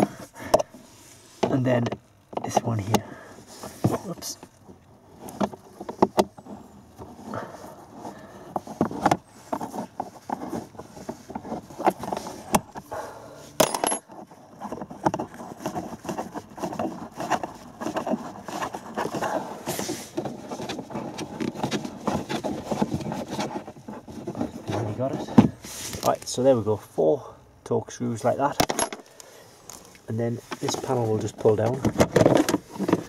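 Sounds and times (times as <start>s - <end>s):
scraping and handling noise: 0.0s - 26.8s, 28.2s - 33.0s
screws and tool rattling on plastic: 13.6s - 25.4s, 30.4s - 33.0s.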